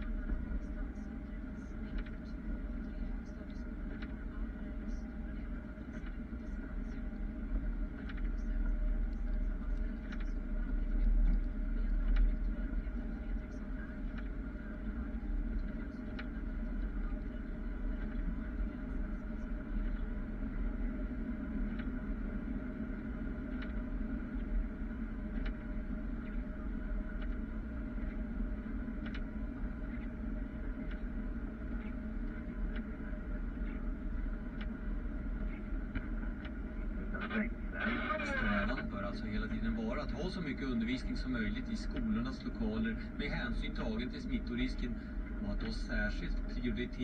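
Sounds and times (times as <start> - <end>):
snowplow truck engine drone: 0.0 - 47.0
faint ticks: 7.9 - 17.4, 22.9 - 36.6.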